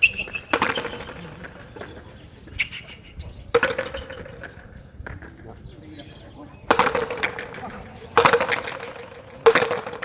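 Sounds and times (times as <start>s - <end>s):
ball hitting concrete walls: 0.1s - 2.0s, 3.5s - 4.5s, 6.6s - 10.0s
ball hitting wooden paddles: 0.2s - 2.0s, 3.5s - 5.2s, 6.7s - 10.0s.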